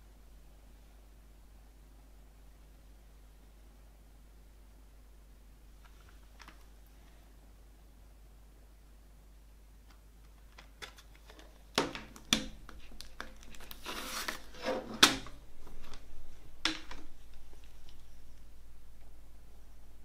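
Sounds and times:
plastic scraping and rustling: 10.3s - 18.4s.

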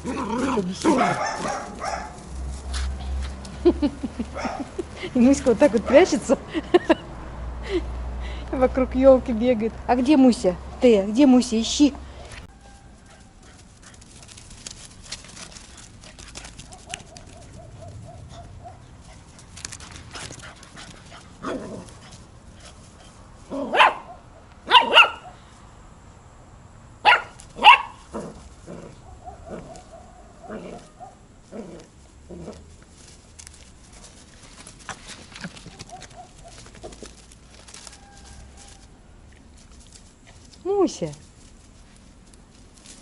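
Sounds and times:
puppy barking: 0.8s - 2.2s, 4.3s - 4.7s, 16.6s - 18.9s, 23.6s - 25.4s, 27.0s - 28.0s, 29.0s - 31.2s, 35.9s - 36.7s.

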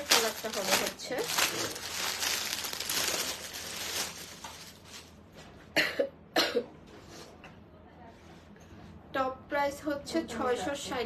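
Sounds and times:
plastic packaging rustling: 0.0s - 5.4s
woman coughing: 5.8s - 6.7s.

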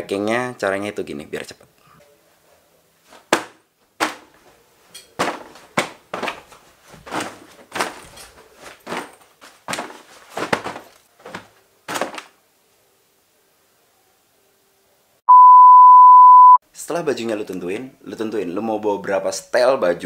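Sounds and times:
clothes thudding into suitcase: 3.1s - 4.5s, 5.2s - 12.4s.

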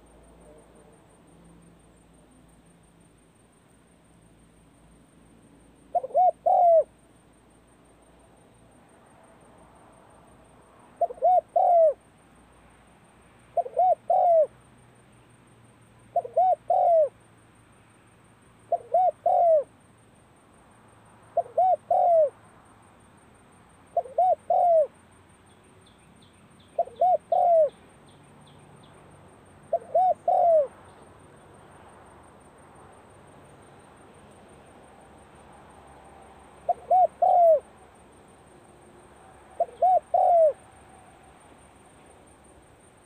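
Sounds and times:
dove cooing: 5.9s - 6.9s, 11.0s - 12.0s, 13.5s - 14.5s, 16.1s - 17.2s, 18.7s - 19.7s, 21.4s - 22.4s, 23.9s - 24.9s, 26.8s - 27.8s, 29.7s - 30.8s, 36.6s - 37.7s, 39.5s - 40.6s.

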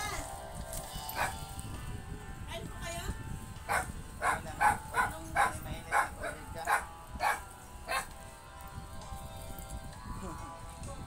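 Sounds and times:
dog barking: 1.2s - 1.4s, 3.7s - 8.1s.

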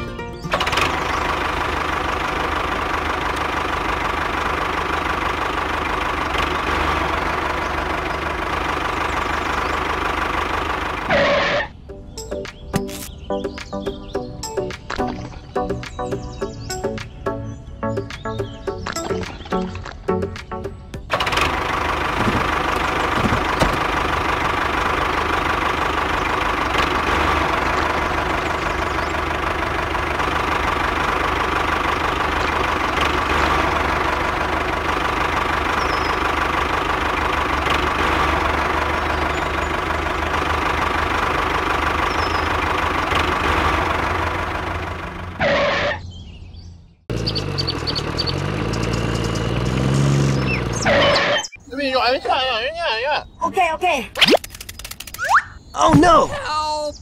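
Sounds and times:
small tractor engine chugging: 0.0s - 11.6s, 21.0s - 45.9s, 47.1s - 51.3s.

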